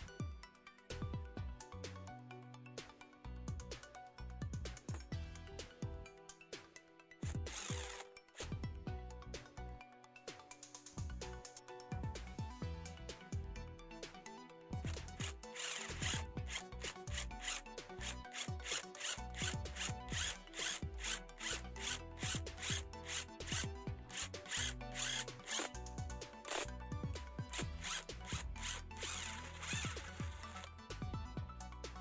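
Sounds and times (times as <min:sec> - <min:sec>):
drill bit boring into wood: 0:07.2 - 0:08.5, 0:14.9 - 0:25.8, 0:26.4 - 0:26.8, 0:27.5 - 0:30.7.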